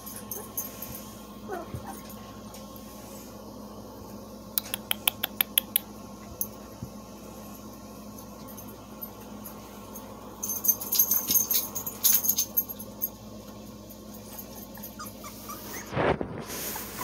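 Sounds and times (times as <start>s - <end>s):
puppy whimpering: 1.5s - 2.2s, 14.4s - 16.2s.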